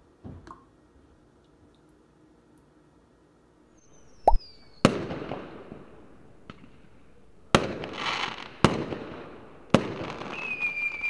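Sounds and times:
firework bangs with crackle: 4.4 - 5.8, 7.5 - 11.0
falling firework whistle: 9.8 - 11.0.

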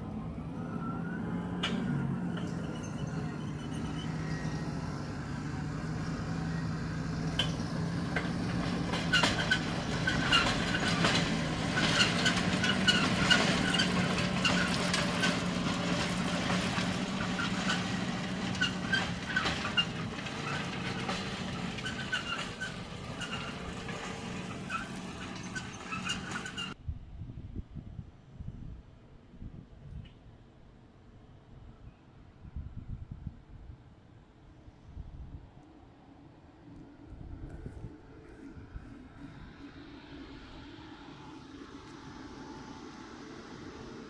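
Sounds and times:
tractor diesel engine running: 0.0 - 26.8.

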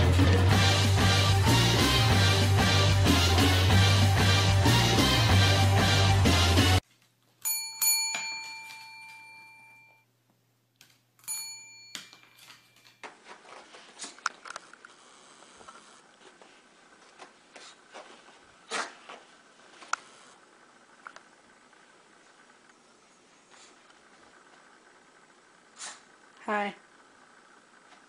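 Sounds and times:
service bell dinging: 7.4 - 10.1, 11.2 - 12.4.

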